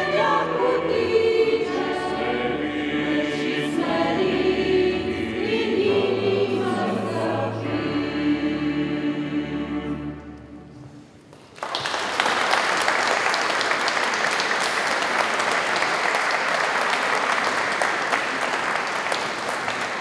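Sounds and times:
choir holding a chord: 0:00.0 - 0:11.1
audience applause: 0:11.2 - 0:20.0.

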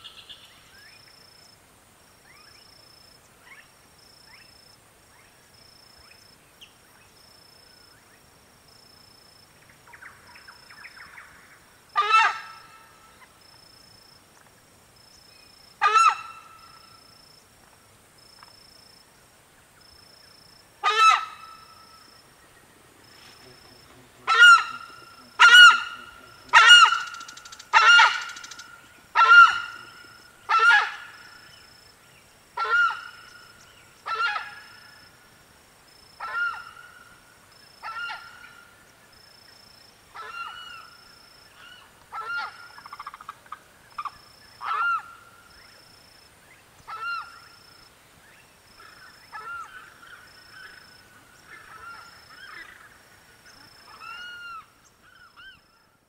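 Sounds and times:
cricket chirping: 0:00.0 - 0:56.0
heron calling: 0:24.2 - 0:31.4.

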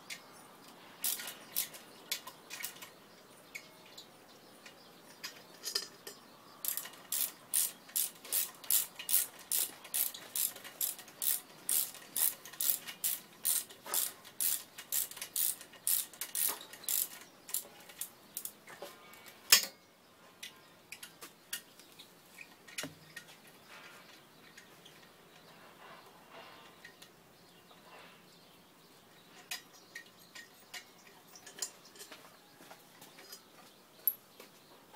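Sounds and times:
ratchet wrench clicking: 0:01.0 - 0:01.8, 0:06.6 - 0:18.5.

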